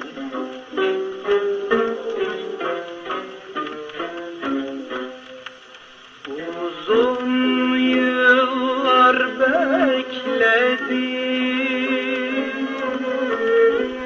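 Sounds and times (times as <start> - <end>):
ornamented instrumental melody: 0.0 - 6.0.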